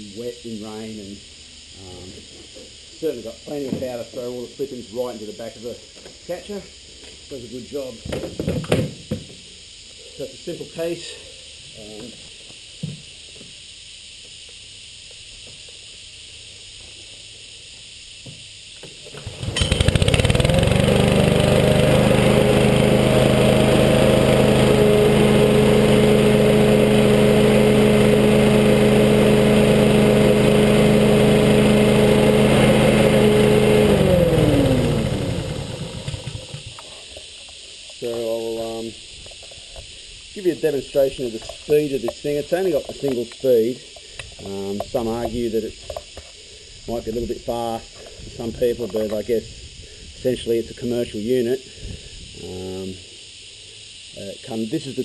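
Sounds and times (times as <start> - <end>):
lawn mower engine pull-start: 18.8 - 37.2
lawn mower engine running: 19.0 - 37.0.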